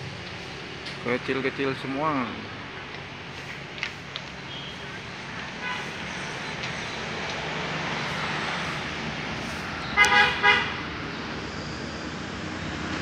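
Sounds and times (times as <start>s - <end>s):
steady background noise: 0.0s - 13.0s
vehicle horn tooting: 5.6s - 6.0s, 9.9s - 10.8s.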